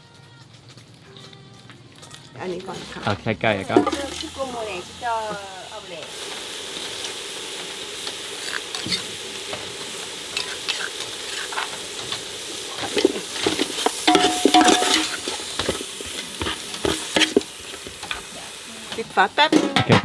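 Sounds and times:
meat sizzling in a pot: 0:02.0 - 0:19.9
metal ladle scraping a pot: 0:08.4 - 0:09.1, 0:10.3 - 0:12.1, 0:12.8 - 0:17.4.

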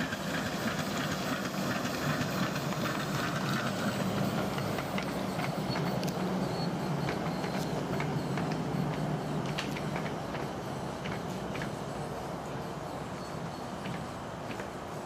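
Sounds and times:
hiss: 0:00.0 - 0:06.8
miniature railway locomotive humming: 0:00.0 - 0:15.0.

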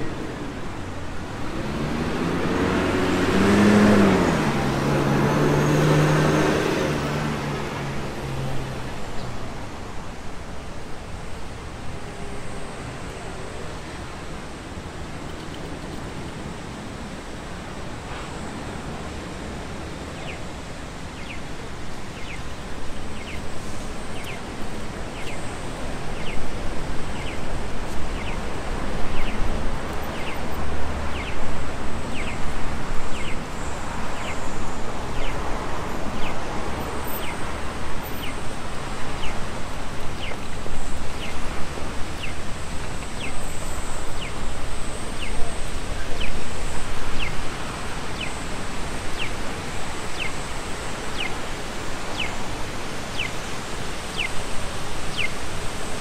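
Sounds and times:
street noise: 0:00.0 - 0:56.0
pedestrian crossing electronic chirps: 0:21.1 - 0:56.0.

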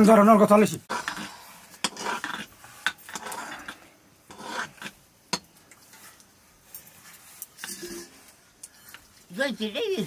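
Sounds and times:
ladle scraping dough in pot: 0:00.9 - 0:05.1, 0:05.7 - 0:09.3.

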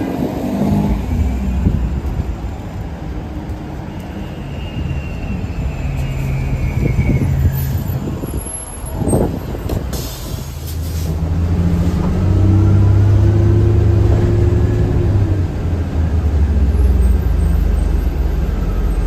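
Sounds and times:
bus engine rumble: 0:00.0 - 0:19.0.

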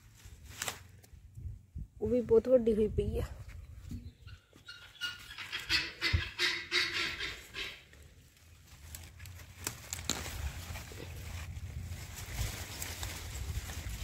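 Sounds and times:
leaves rustling: 0:00.0 - 0:01.4, 0:04.5 - 0:14.0
radish pulled from soil: 0:00.0 - 0:01.4, 0:07.4 - 0:14.0.

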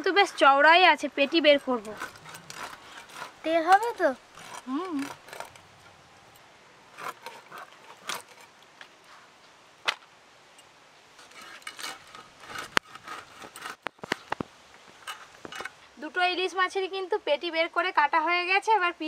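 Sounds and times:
blade cutting fish: 0:00.0 - 0:05.6.

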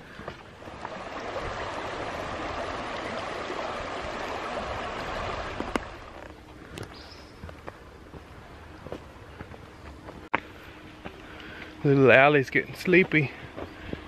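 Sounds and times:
creek babbling over stones: 0:00.2 - 0:06.3.

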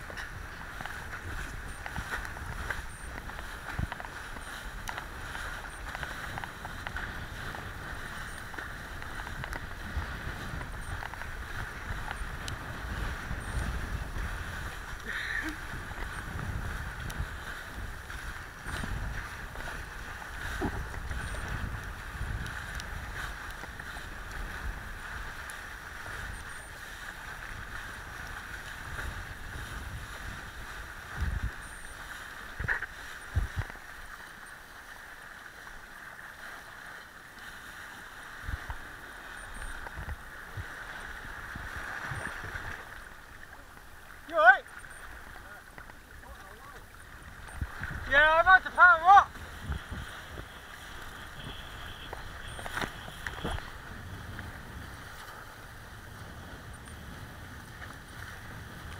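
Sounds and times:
wind buffeting microphone: 0:00.0 - 0:33.7, 0:46.2 - 0:58.9
board planing across sea water: 0:00.0 - 0:58.9.

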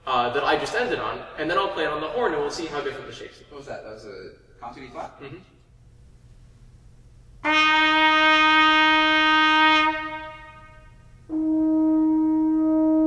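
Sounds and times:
french horn holding a note: 0:07.4 - 0:13.0
trumpet holding a note: 0:07.4 - 0:13.0.

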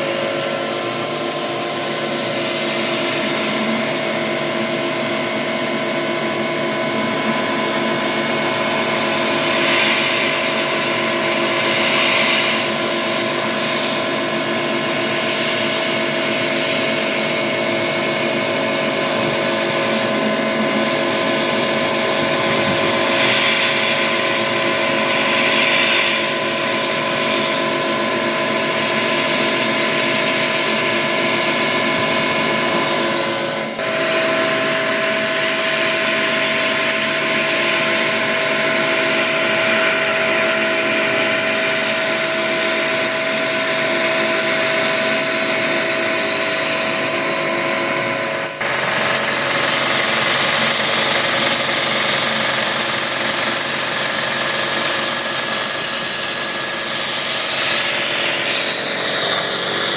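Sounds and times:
milling machine spindle whine: 0:00.0 - 0:59.9
hiss of cutting plastic: 0:07.0 - 0:17.2, 0:18.8 - 0:27.9, 0:33.7 - 0:47.7, 0:48.3 - 0:59.9.

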